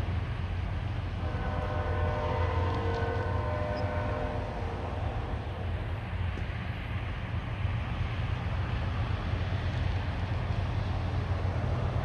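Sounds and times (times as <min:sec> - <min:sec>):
diesel locomotive horn: 0:01.1 - 0:05.6.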